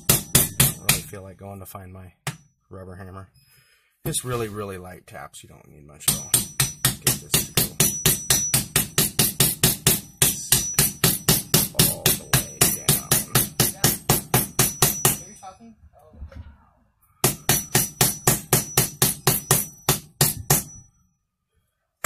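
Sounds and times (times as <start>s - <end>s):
hammer tapping metal: 0.0s - 1.1s, 6.1s - 15.5s, 17.2s - 21.0s.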